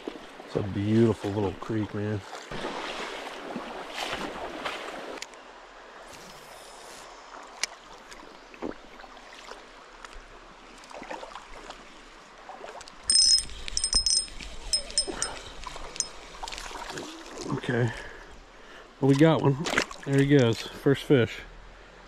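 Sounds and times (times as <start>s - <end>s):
fishing reel whirring: 13.1s - 15.3s.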